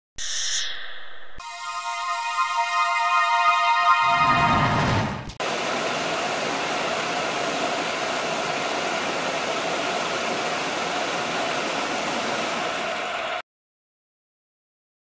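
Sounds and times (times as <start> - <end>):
film projector whirring: 5.4 - 13.4.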